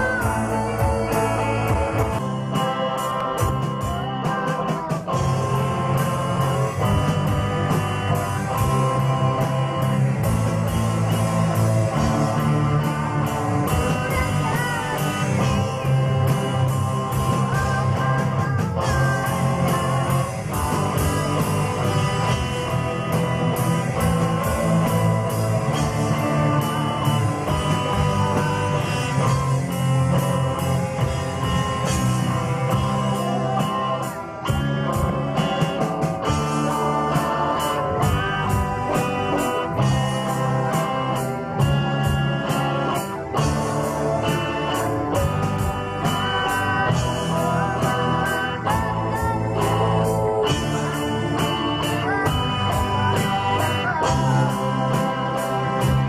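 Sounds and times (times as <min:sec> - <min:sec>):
woman singing: 0:00.0 - 0:02.2, 0:13.6 - 0:21.5, 0:46.0 - 0:56.0
live rock band playing: 0:00.0 - 0:56.0.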